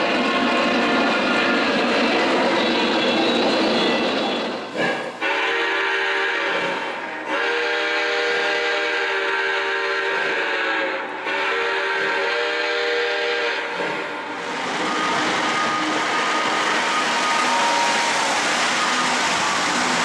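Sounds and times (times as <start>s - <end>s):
chime steam whistle blasts: 4.9s - 20.0s.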